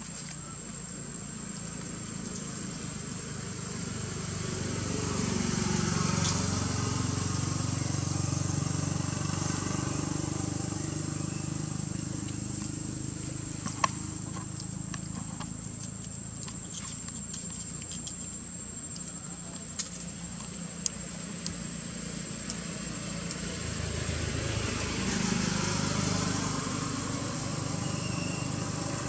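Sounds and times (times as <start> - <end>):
low engine-like rumble: 0.0 - 29.0
small clicks and crackles: 12.1 - 23.6.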